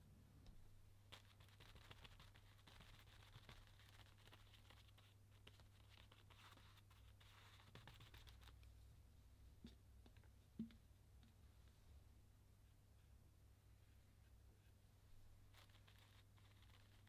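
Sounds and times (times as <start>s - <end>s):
low steady hum: 0.0s - 7.4s, 8.1s - 17.0s
brush dabbing paint on paper: 1.1s - 8.8s, 12.6s - 17.0s.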